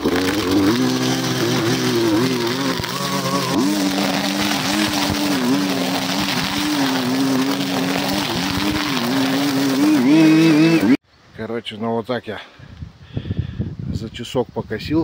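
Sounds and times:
string trimmer engine: 0.0 - 11.0.

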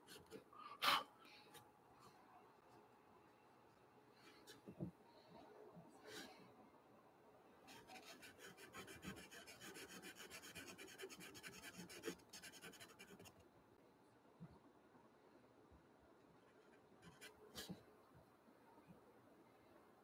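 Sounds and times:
pencil scratching on paper: 7.7 - 13.4.

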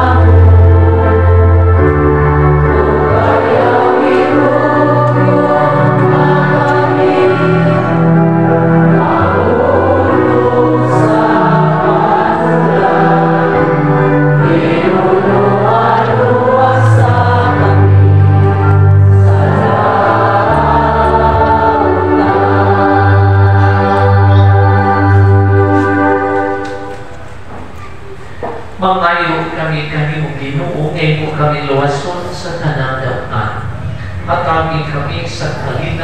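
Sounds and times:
choir singing: 0.0 - 27.4.

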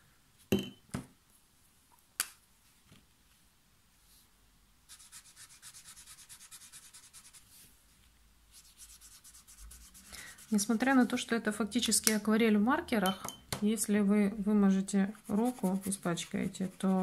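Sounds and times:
brush pen scrubbing on paper: 4.9 - 7.6, 8.5 - 11.2, 15.0 - 17.0.

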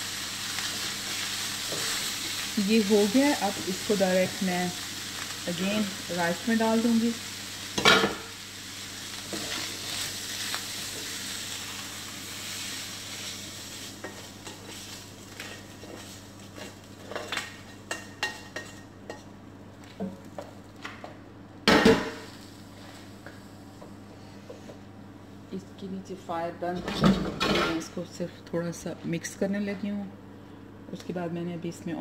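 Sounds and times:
chicken sizzling in frying pan: 0.0 - 19.0.

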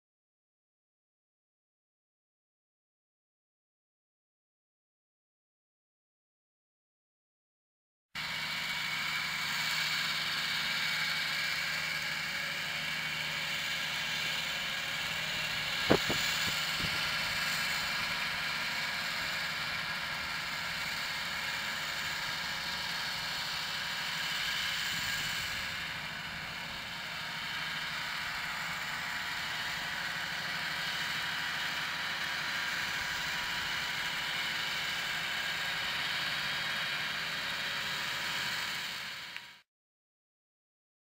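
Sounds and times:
tractor engine running: 8.2 - 39.6
slurry spreading hiss: 15.7 - 17.9.

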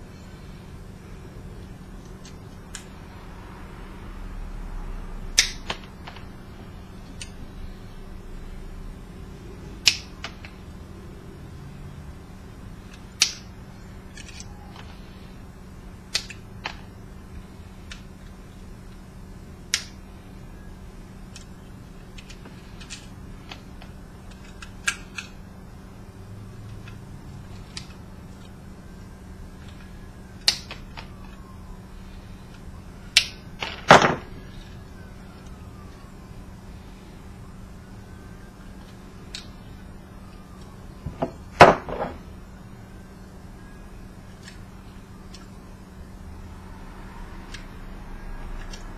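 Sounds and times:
plastic parts clicking and snapping: 1.6 - 2.9, 5.3 - 6.3, 9.8 - 10.6, 12.8 - 15.2, 16.0 - 16.9, 17.8 - 19.0, 19.7 - 20.0, 21.3 - 25.4, 26.6 - 28.6, 29.6 - 31.4, 32.4 - 36.0, 38.6 - 42.2, 44.3 - 45.6, 47.5 - 47.7, 48.5 - 48.9
wire cutters snipping wire: 5.4 - 6.3, 12.9 - 13.5, 19.7 - 20.0.

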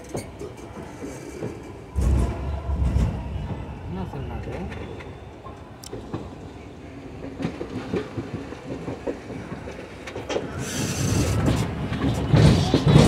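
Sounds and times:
train wheels clacking over rail joints: 7.1 - 13.0.

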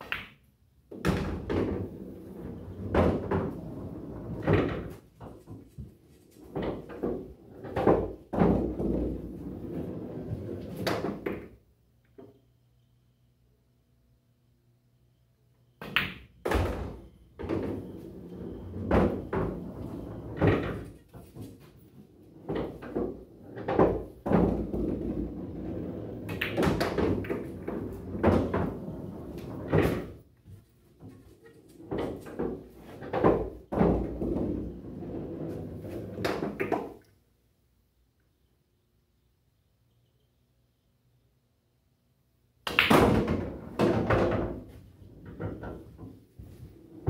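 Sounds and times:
pool balls clacking: 0.0 - 5.7, 6.4 - 11.6, 15.8 - 30.2, 30.9 - 37.1, 42.6 - 47.0
balls rolling through ball return: 0.0 - 12.4, 15.6 - 37.1, 42.6 - 47.0.

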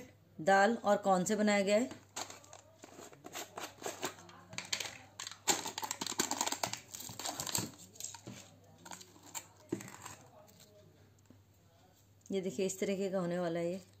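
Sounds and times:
seal tearing and crinkling: 5.2 - 8.2.

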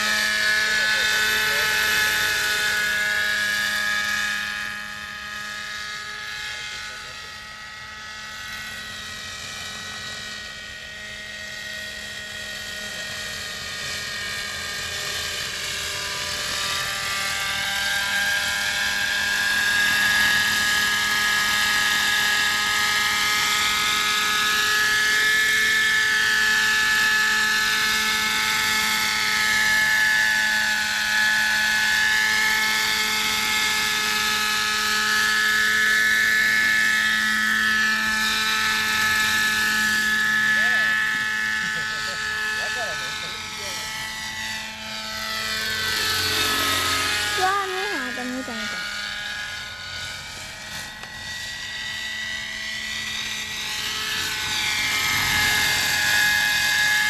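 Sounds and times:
rotor noise: 0.0 - 11.0, 30.8 - 57.0
model helicopter engine whine: 0.0 - 57.0.

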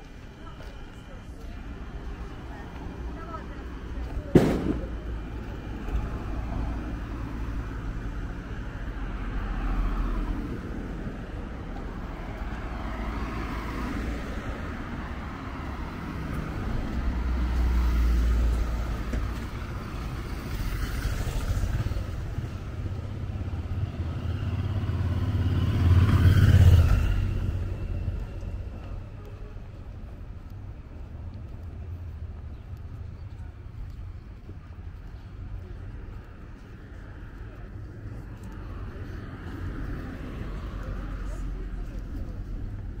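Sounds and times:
cars driving past: 0.0 - 43.0
motor scooter passing: 15.5 - 29.0.

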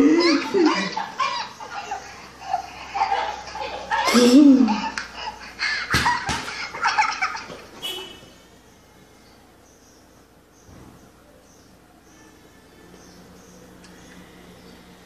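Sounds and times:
voices: 0.0 - 5.5
loud pitched laugh: 0.0 - 7.6
laughter: 0.0 - 7.7.

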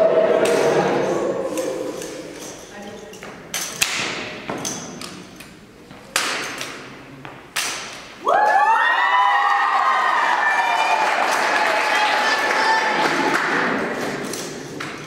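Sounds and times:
crowd cheering: 0.0 - 2.3, 8.2 - 14.0.

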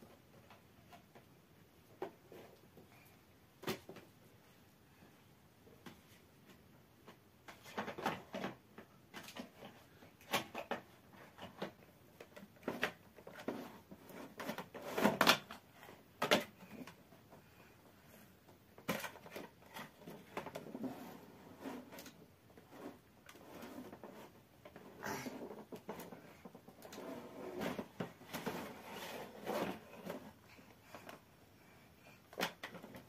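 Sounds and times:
plastic parts clicking and knocking: 7.0 - 17.5, 18.5 - 20.8, 32.2 - 33.0.

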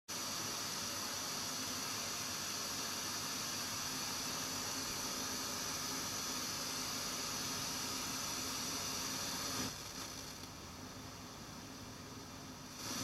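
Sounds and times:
radio static hiss: 0.1 - 11.1, 11.8 - 13.0.

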